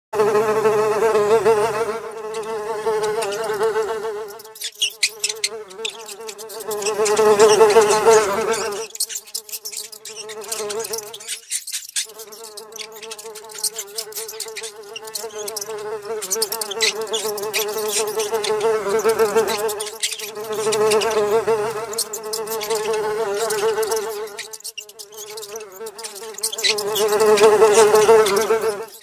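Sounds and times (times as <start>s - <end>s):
fly buzzing: 0.2s - 29.0s.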